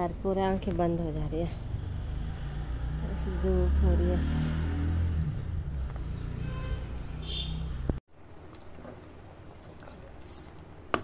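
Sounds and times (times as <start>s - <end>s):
bird chirping: 0.0s - 8.0s.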